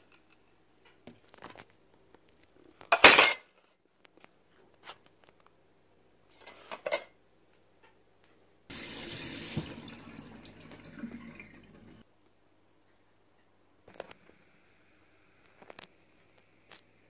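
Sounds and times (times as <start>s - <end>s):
tap water running into sink: 8.7s - 12.0s.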